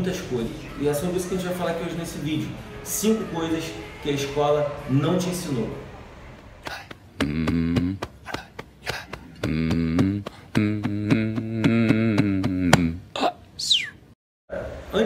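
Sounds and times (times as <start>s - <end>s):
downward synth sweep: 0.0s - 6.6s
bass-heavy synth tones: 0.0s - 8.0s, 9.4s - 13.0s.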